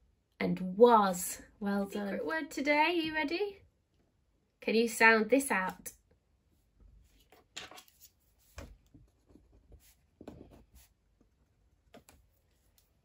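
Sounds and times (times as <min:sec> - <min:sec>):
pen scratching and tapping paper: 0:07.6 - 0:13.0.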